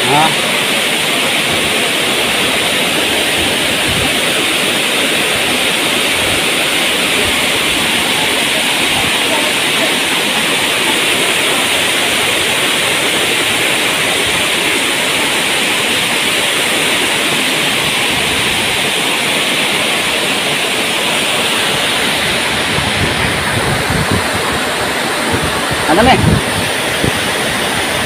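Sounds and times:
waterfall rushing: 0:00.0 - 0:28.0.

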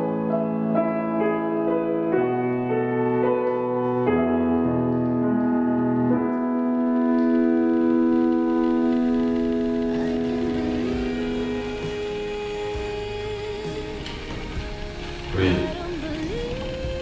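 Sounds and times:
grand piano playing: 0:00.0 - 0:17.0.

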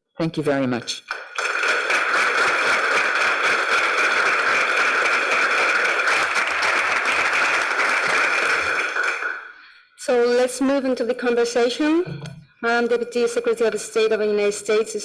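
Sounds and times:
crowd applauding: 0:00.8 - 0:09.6.

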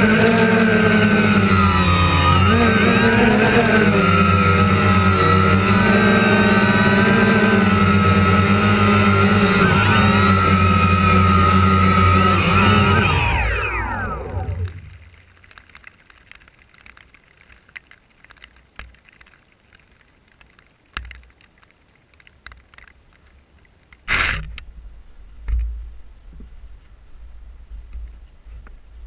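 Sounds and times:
motor whine: 0:00.0 - 0:15.2
grass ticking against camera: 0:05.5 - 0:24.7
wind rumble on microphone: 0:24.1 - 0:29.0.

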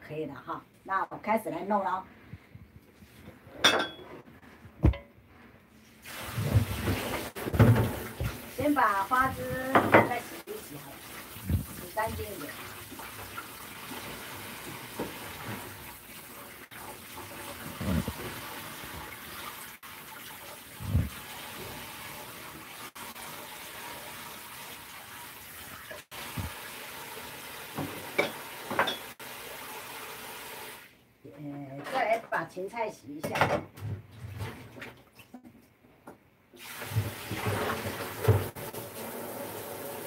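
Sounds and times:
brief knocks and thumps: 0:04.8 - 0:05.1.

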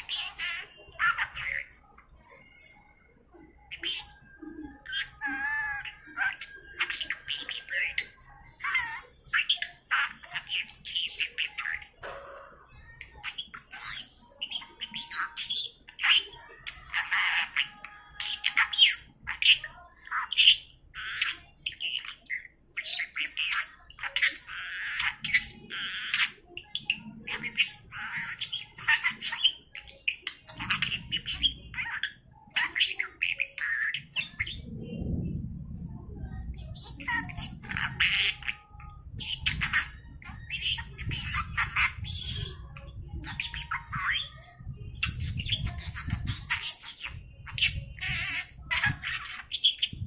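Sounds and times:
budgerigar chattering: 0:00.0 - 0:01.9, 0:03.6 - 0:12.2, 0:12.9 - 0:34.7, 0:36.6 - 0:50.0
budgerigar laughing: 0:45.0 - 0:50.0.

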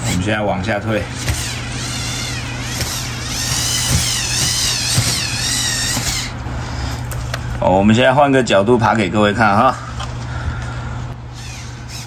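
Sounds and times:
steady low hum: 0:00.0 - 0:12.0
toy motor gear whine: 0:01.1 - 0:06.8, 0:11.3 - 0:12.0.

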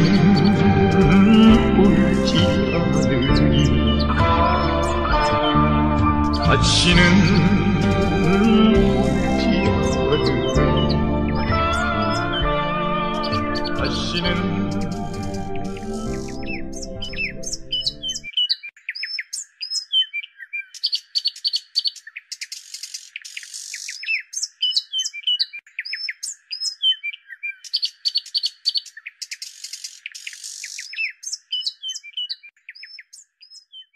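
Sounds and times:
song accompaniment: 0:00.0 - 0:18.0
songbirds chirping and whistling: 0:00.0 - 0:33.9.

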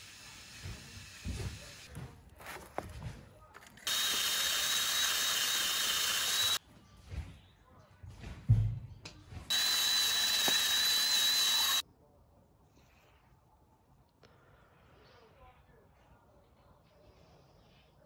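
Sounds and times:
drill wire brush whining on metal: 0:00.0 - 0:01.9, 0:03.8 - 0:06.6, 0:09.5 - 0:11.8.

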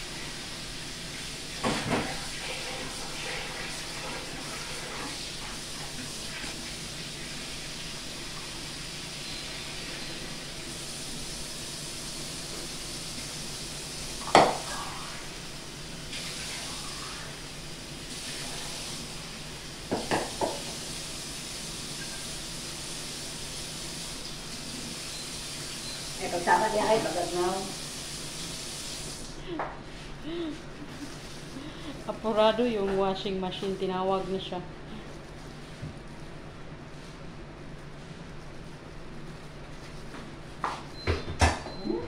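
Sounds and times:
knock against a plate: 0:14.3 - 0:14.6, 0:19.9 - 0:20.6.

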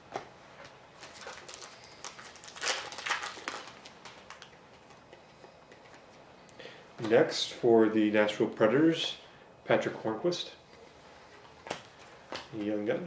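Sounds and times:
card pack wrapper crinkling: 0:00.9 - 0:05.0.

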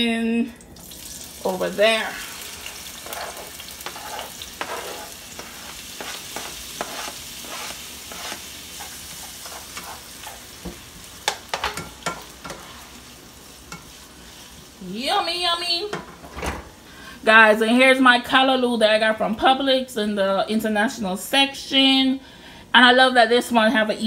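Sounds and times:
vegetables sizzling in oil: 0:00.8 - 0:16.3.

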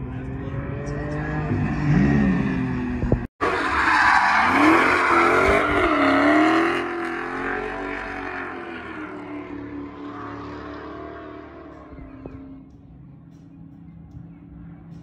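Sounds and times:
passing sports car engine: 0:00.0 - 0:03.7, 0:04.4 - 0:15.0
car engine revving: 0:00.0 - 0:12.8
tyres spinning and squealing: 0:03.4 - 0:06.6.

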